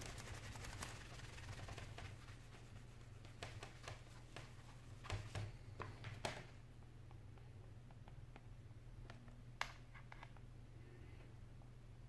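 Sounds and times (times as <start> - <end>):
cloth rubbing on glass screen: 0.0 - 5.1.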